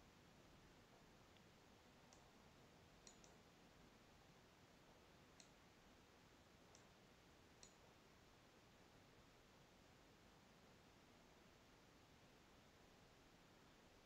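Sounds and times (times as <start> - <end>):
computer mouse clicks: 2.1 - 2.3, 3.0 - 3.5, 5.4 - 5.6, 6.7 - 7.0, 7.6 - 7.9.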